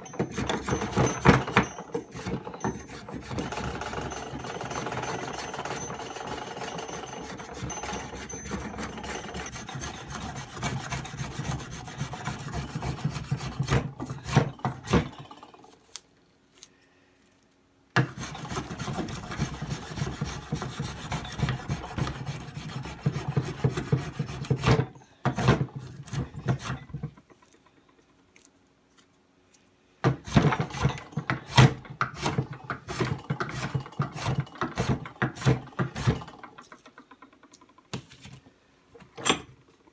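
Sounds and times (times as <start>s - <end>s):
hand plane rasping on wood: 7.0s - 15.0s, 18.0s - 24.8s.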